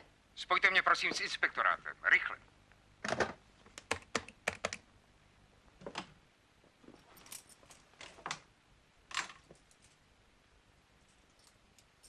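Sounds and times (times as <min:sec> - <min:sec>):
keys rattling in door lock: 0:07.0 - 0:07.9, 0:11.1 - 0:12.0.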